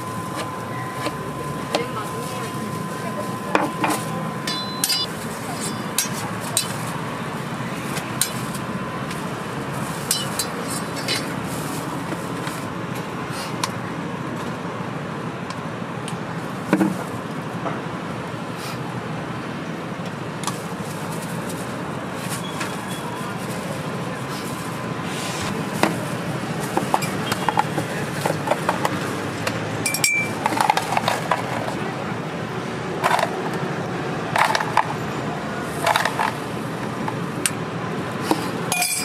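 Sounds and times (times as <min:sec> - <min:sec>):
street traffic: 0:00.0 - 0:39.0.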